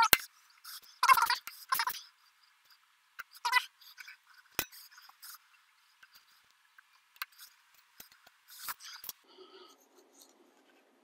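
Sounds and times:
pliers metallic clicks and scrapes: 3.2s - 5.4s.

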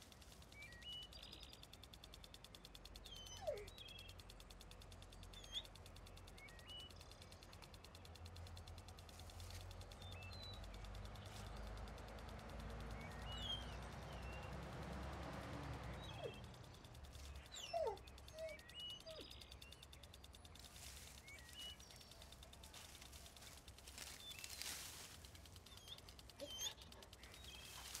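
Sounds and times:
faint high chirps: 0.0s - 28.0s
small dog whimpering: 3.1s - 3.7s, 17.6s - 19.2s, 26.4s - 26.9s.

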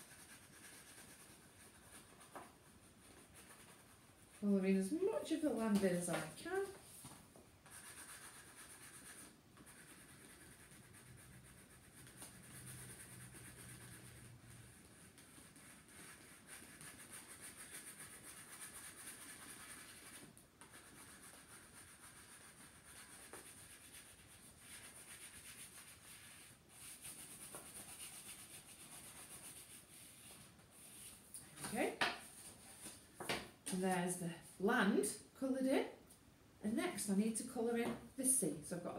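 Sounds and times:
crayon rubbing on paper plate: 0.0s - 2.3s, 7.7s - 31.2s.

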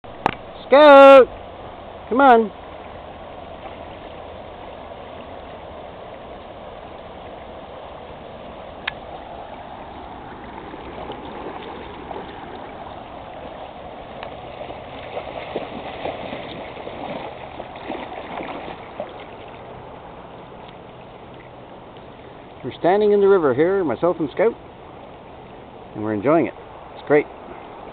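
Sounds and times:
shallow stream flowing: 0.0s - 27.9s
feet wading and splashing: 2.1s - 23.0s.

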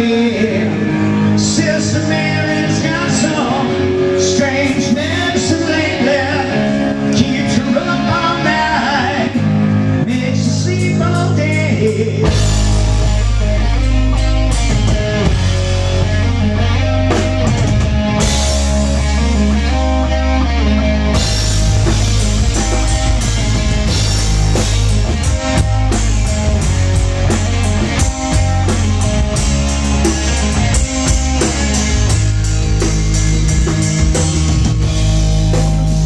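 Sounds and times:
person singing: 0.0s - 9.4s
drums: 0.0s - 36.0s
electric guitars: 0.0s - 36.0s
heavy bass line: 0.0s - 36.0s.

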